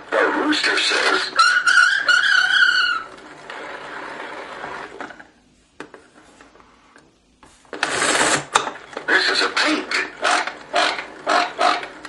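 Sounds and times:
recorded call from toy speaker: 0.1 - 3.1, 9.0 - 11.9.

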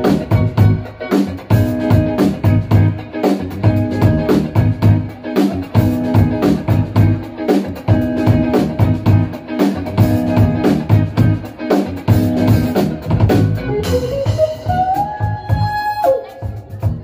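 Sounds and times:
funk band playing: 0.0 - 17.0
saxophone line: 13.6 - 17.0.

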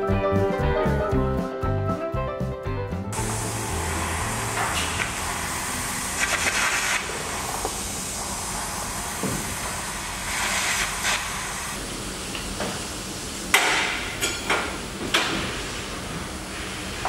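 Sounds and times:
brief hissing rush: 3.2 - 11.8.

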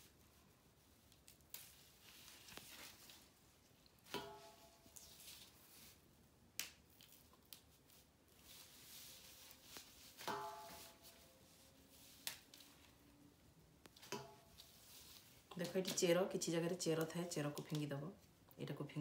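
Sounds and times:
vine stems snapping: 6.6 - 7.6
metal bowl ringing: 10.3 - 11.0.

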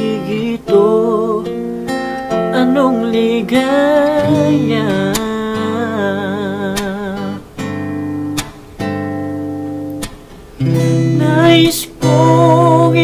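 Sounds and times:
man singing: 0.0 - 7.5, 11.0 - 13.0
acoustic guitar strumming chords: 0.0 - 13.0.

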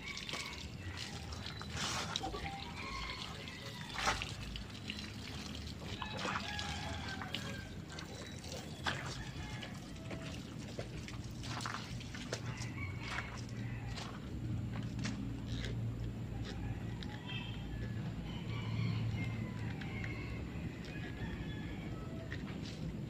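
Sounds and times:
hose water splashing: 0.0 - 14.2.

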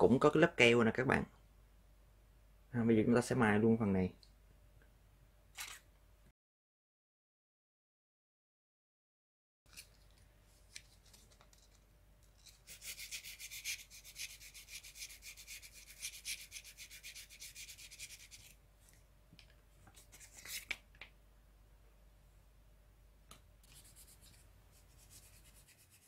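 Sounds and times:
sandpaper rubbing back and forth: 12.4 - 18.6, 23.7 - 26.0.

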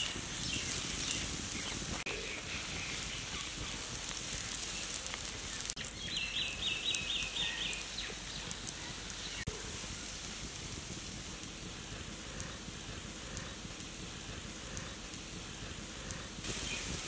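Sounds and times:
batter sizzling on a griddle: 0.0 - 17.0.

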